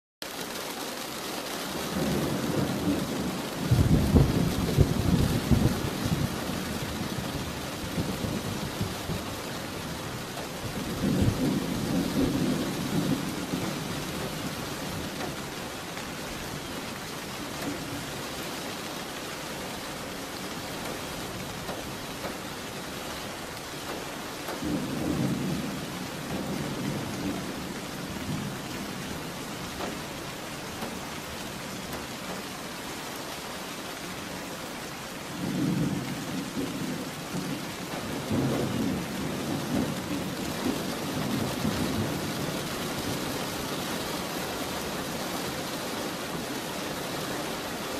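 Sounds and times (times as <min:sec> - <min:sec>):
steady rain: 0:00.2 - 0:47.9
thunder rumbling: 0:01.9 - 0:15.7, 0:24.5 - 0:30.0, 0:35.3 - 0:44.0.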